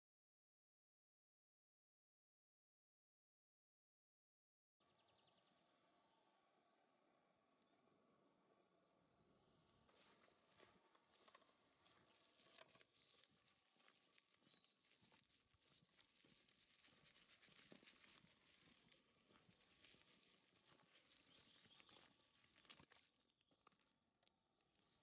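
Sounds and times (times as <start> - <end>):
bicycle tyres crunching on gravel: 10.0 - 23.9.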